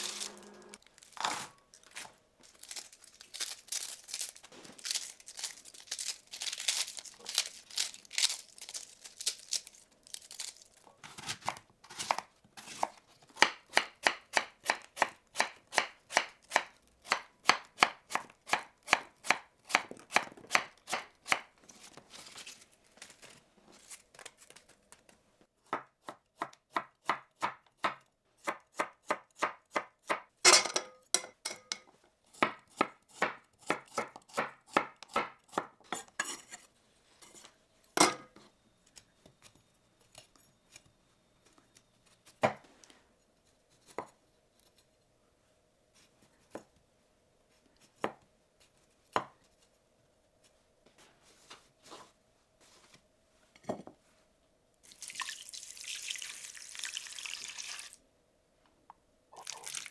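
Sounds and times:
knife chopping on cutting board: 11.1 - 21.5, 32.4 - 36.4.

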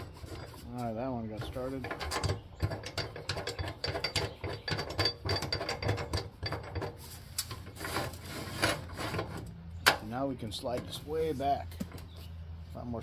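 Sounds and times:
metal scraping and rubbing: 0.0 - 9.6.

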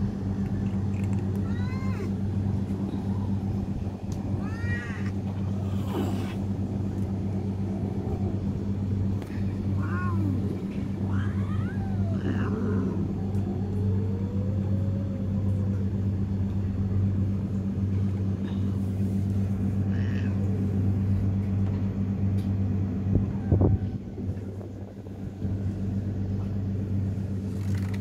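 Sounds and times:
low machine hum: 0.0 - 28.0
cat meowing: 1.4 - 2.1, 4.3 - 5.2, 9.7 - 13.6.

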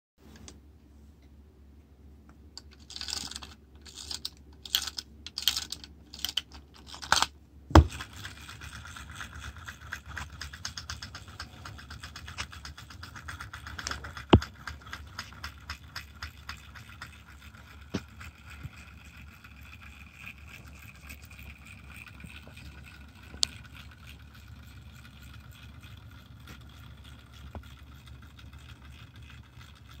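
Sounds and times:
clockwork key ratcheting: 2.6 - 7.3
clockwork toy clattering: 2.6 - 30.0
sharp knocks of toy: 7.7 - 8.0.

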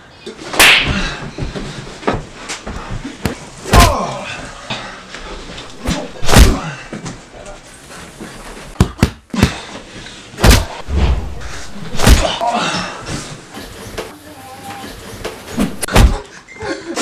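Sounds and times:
punch hits: 3.7 - 4.0, 5.8 - 6.7, 10.4 - 12.4, 15.6 - 16.2
quick swish: 10.4 - 12.4.

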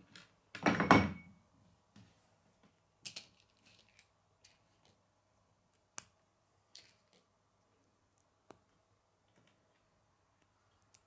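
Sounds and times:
plastic pieces clattering: 3.0 - 5.0
plastic pieces clicking: 3.0 - 5.0.

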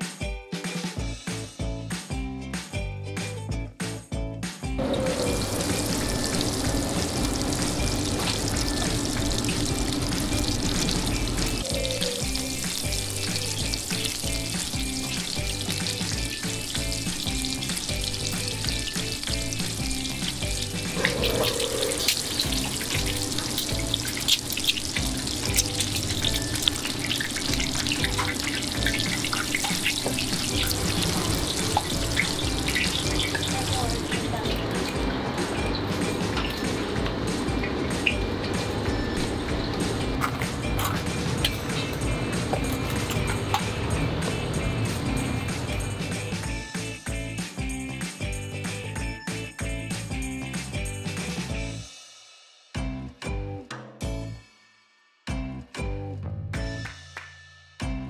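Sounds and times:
background music: 0.0 - 58.0
dough deep-frying in hot oil: 4.8 - 46.6.

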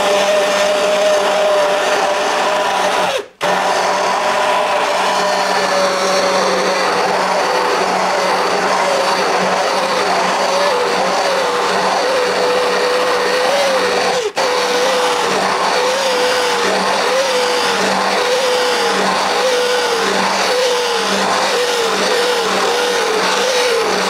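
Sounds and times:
immersion blender motor whine: 0.0 - 24.0.

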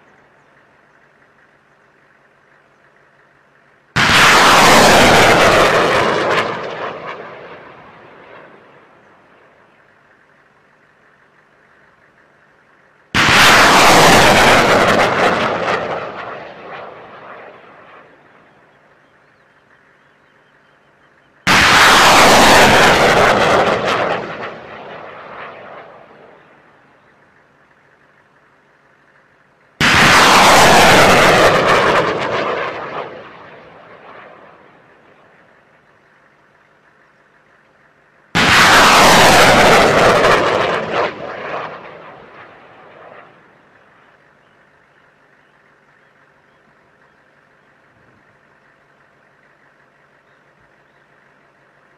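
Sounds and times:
rocket launch blast: 3.9 - 9.0, 13.1 - 18.3, 21.4 - 26.7, 29.8 - 35.3, 38.3 - 43.7
rocket motor roaring: 29.8 - 33.5, 38.3 - 42.4.

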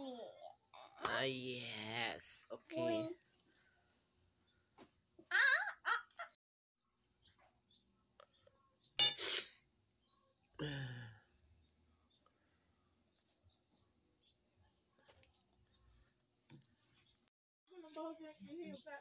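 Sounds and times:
small bird chirping: 0.0 - 3.9, 4.5 - 4.8, 6.8 - 17.3.

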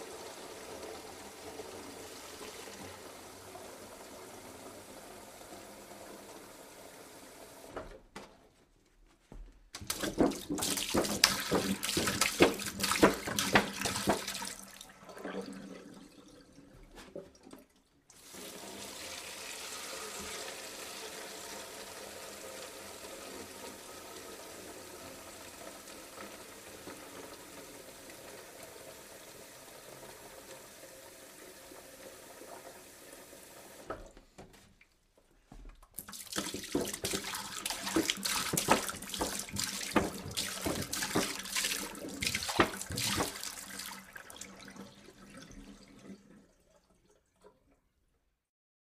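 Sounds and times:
water pouring from a jug: 9.8 - 20.5, 35.9 - 47.7.

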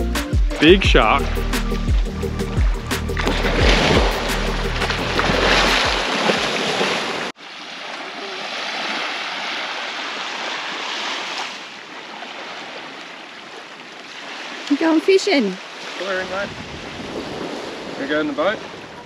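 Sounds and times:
shark thrashing and splashing: 1.2 - 11.5
small waves lapping on beach: 3.2 - 19.0.

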